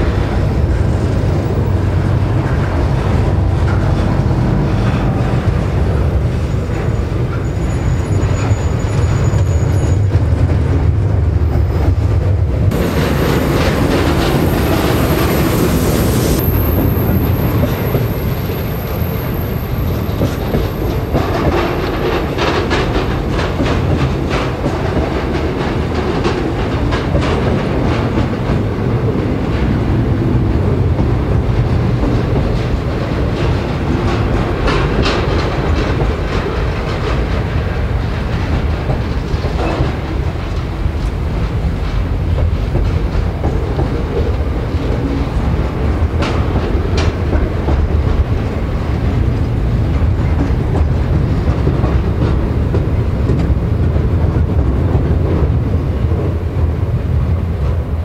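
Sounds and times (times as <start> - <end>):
freight train rumbling: 0.0 - 58.0
train wheels clattering: 0.0 - 58.0.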